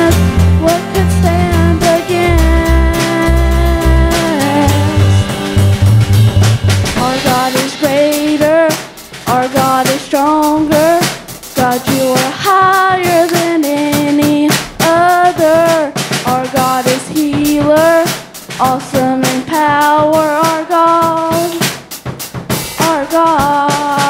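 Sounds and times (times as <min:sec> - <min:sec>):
person singing slow melody: 0:00.0 - 0:05.2
band playing worship song: 0:00.0 - 0:19.6.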